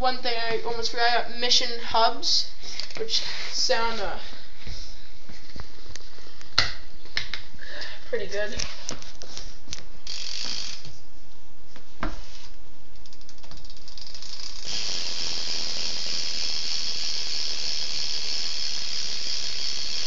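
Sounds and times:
bike hub ratchet clicking: 0:09.7 - 0:10.9, 0:13.0 - 0:20.0.

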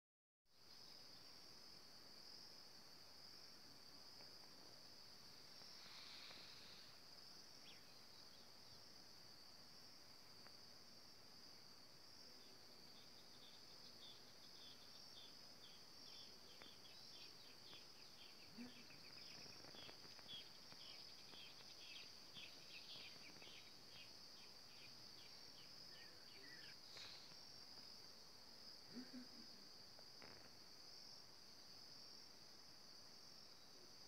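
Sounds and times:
high-pitched insect trill: 0:12.8 - 0:28.0.

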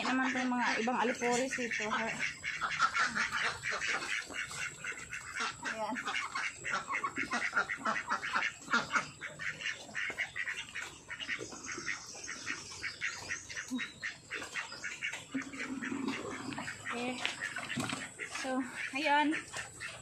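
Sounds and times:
ducks quacking: 0:00.0 - 0:20.0.

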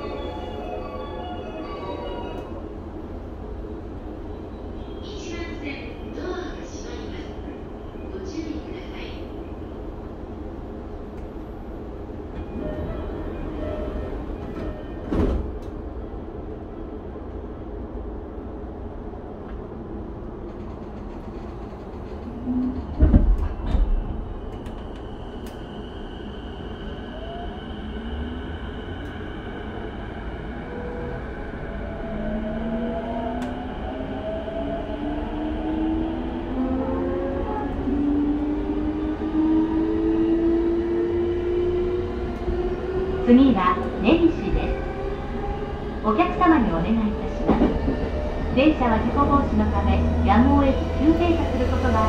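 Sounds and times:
hum and rumble inside train car: 0:00.0 - 0:52.0
train doors closing with a thud: 0:13.8 - 0:15.8, 0:20.4 - 0:25.0, 0:47.4 - 0:48.4.

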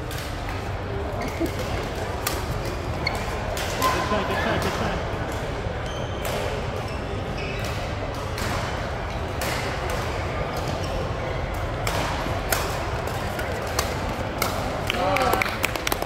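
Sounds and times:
echoing hubbub of voices: 0:00.0 - 0:16.0
rackets striking shuttlecocks: 0:11.4 - 0:15.3.

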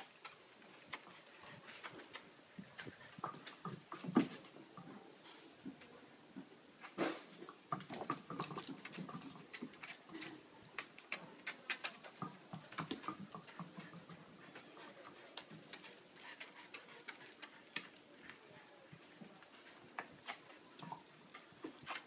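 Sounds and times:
dogs making play noises: 0:00.0 - 0:05.2, 0:07.7 - 0:18.5.

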